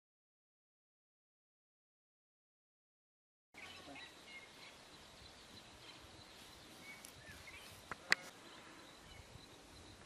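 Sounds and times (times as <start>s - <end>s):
bird chirps: 3.6s - 10.0s
faint outdoor ambience: 3.6s - 10.0s.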